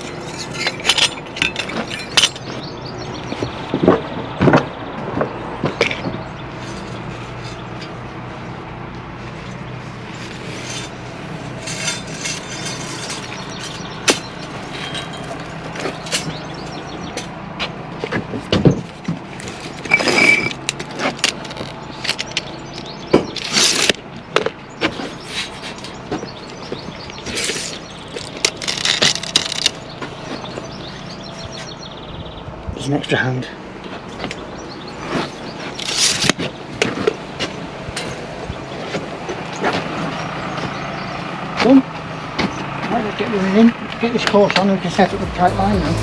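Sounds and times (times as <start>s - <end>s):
tools clicking and scraping on metal: 0.0s - 2.7s, 10.1s - 17.4s, 18.8s - 24.0s, 27.0s - 29.8s, 35.1s - 38.3s
brief squeak: 19.9s - 20.6s.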